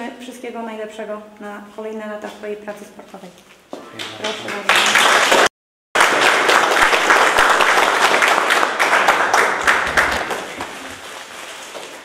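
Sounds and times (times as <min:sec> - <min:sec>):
people clapping: 0:03.8 - 0:12.0.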